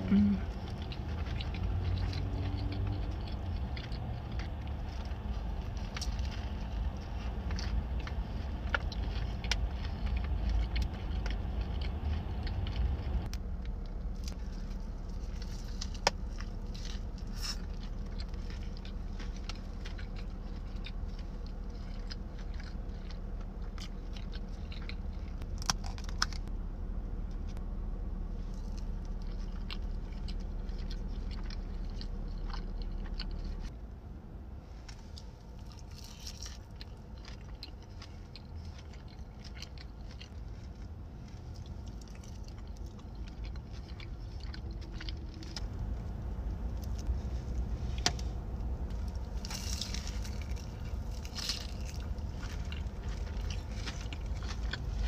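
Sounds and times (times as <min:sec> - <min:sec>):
food being chewed: 0:00.0 - 0:26.5, 0:28.4 - 0:33.8, 0:34.8 - 0:55.0
steady low hum: 0:00.0 - 0:55.0.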